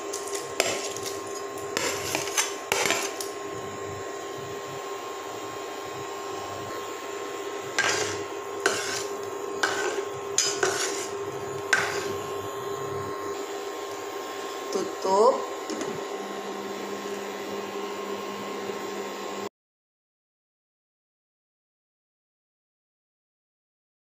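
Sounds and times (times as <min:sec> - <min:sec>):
cooktop hum: 0:00.0 - 0:19.5
spatula scraping and clinking pot: 0:00.1 - 0:03.3, 0:07.7 - 0:12.4.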